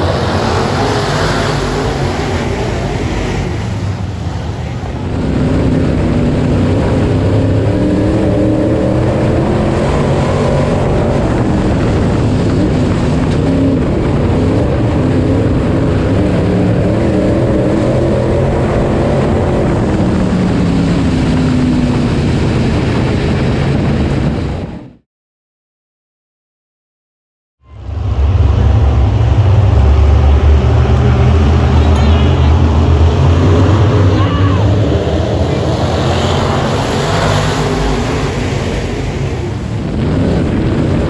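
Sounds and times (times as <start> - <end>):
race car engine revving: 0.0 - 24.2, 27.7 - 41.0.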